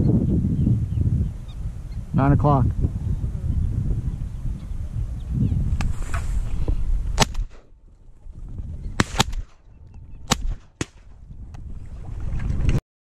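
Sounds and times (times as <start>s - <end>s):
wind rumbling on microphone: 0.0s - 12.8s
shotgun shots: 7.2s - 7.7s, 9.0s - 9.6s, 10.3s - 11.1s.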